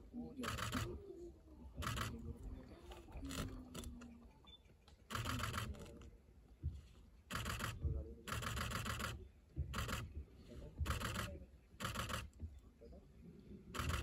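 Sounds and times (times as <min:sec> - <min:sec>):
camera shutters clicking: 0:00.4 - 0:00.9, 0:05.1 - 0:05.9, 0:07.3 - 0:09.2, 0:09.8 - 0:10.1, 0:10.9 - 0:12.3, 0:13.8 - 0:14.0.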